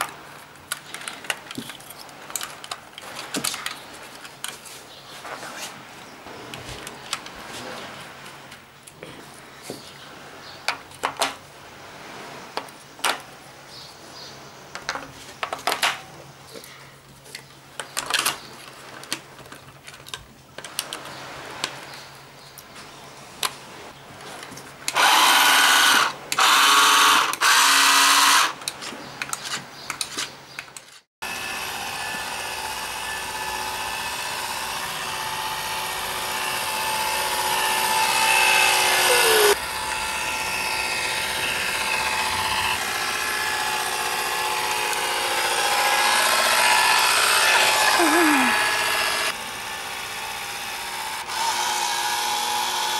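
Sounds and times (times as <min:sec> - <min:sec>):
plastic toy boat handled: 0:00.7 - 0:04.8
small electric motor and propeller: 0:24.9 - 0:28.7, 0:30.9 - 0:52.9
boat motor running on water: 0:31.2 - 0:51.2.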